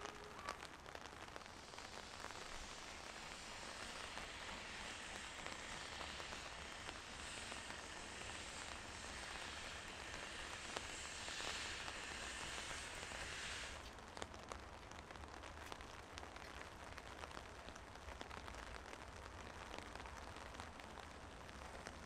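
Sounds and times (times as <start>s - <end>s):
rain falling: 0.0s - 22.0s
steam hissing from locomotive: 0.1s - 14.0s.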